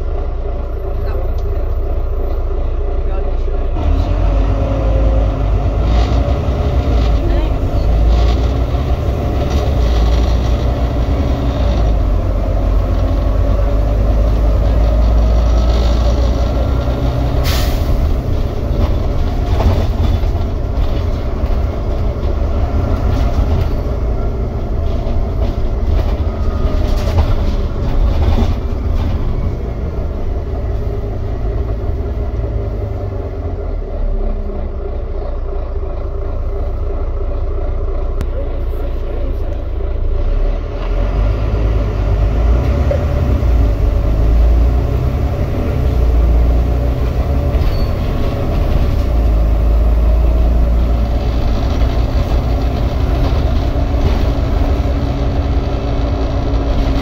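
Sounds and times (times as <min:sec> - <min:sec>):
bus engine and road rumble: 0:00.0 - 0:57.0
bus body knocks and rattles: 0:18.1 - 0:29.4, 0:51.0 - 0:57.0.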